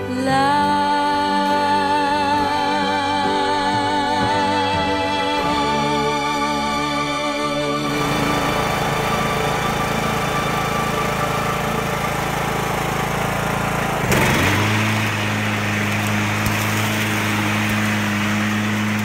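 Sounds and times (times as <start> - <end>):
lawn tractor engine running: 7.8 - 19.0.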